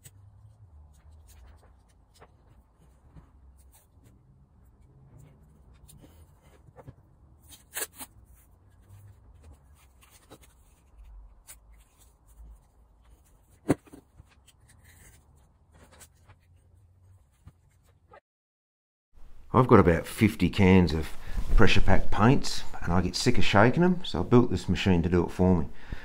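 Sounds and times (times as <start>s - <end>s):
masking tape rustling and scratching: 0.0s - 18.2s.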